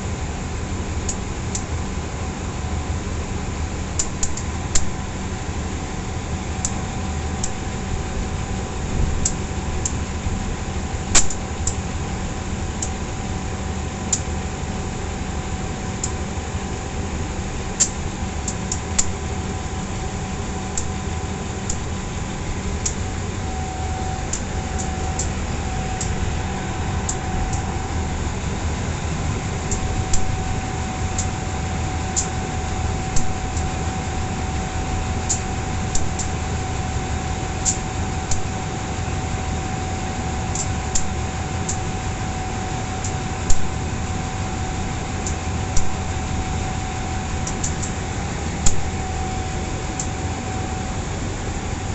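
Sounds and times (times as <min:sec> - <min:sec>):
diesel locomotive drone: 0:00.0 - 0:51.9
small sharp ticks: 0:04.0 - 0:04.9, 0:09.2 - 0:10.0, 0:11.2 - 0:11.8, 0:17.8 - 0:19.1, 0:35.3 - 0:36.4, 0:37.6 - 0:38.5, 0:40.5 - 0:41.1, 0:47.4 - 0:48.0.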